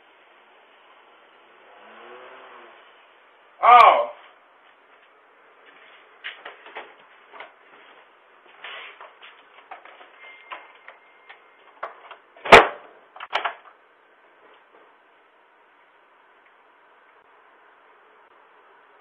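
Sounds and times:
loud sharp bang: 12.4 - 12.9.

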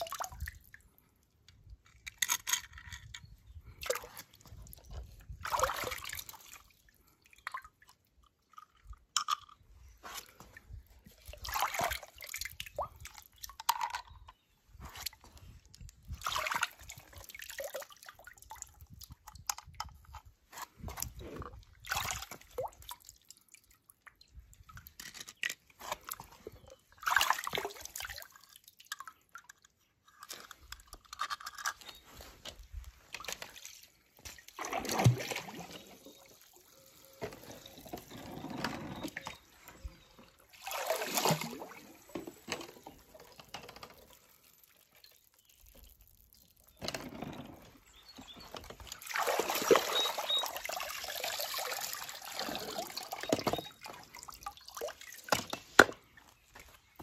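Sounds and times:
water dripping and sloshing: 0.0 - 14.1, 14.7 - 57.0
splashes: 5.4 - 7.8, 11.2 - 13.3, 16.2 - 18.6, 21.8 - 23.7, 26.9 - 29.1, 33.2 - 37.9, 39.2 - 46.8, 48.6 - 56.0.

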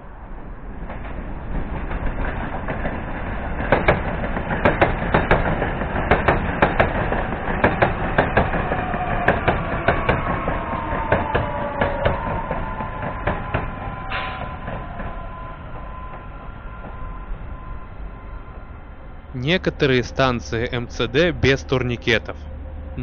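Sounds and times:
train wheels rumbling on rails: 0.0 - 23.0
train whine sliding down: 0.0 - 23.0
wheels clacking over rail joints: 0.6 - 17.1.

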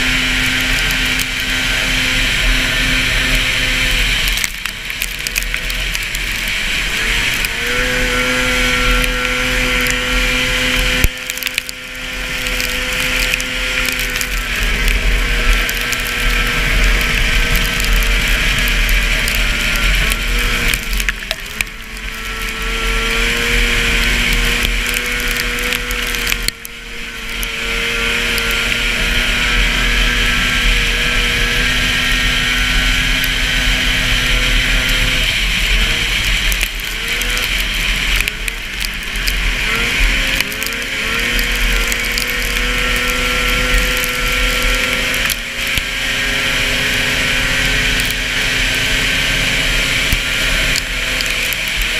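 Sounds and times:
snowmobile engine revving: 0.0 - 51.9.

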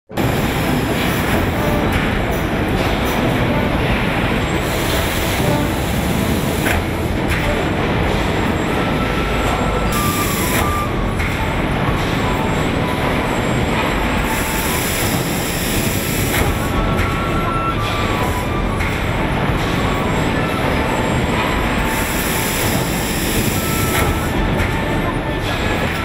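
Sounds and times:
stamping press running: 0.1 - 26.0
hissing bursts: 3.8 - 7.2, 8.0 - 11.3, 14.0 - 16.9, 21.4 - 24.4.

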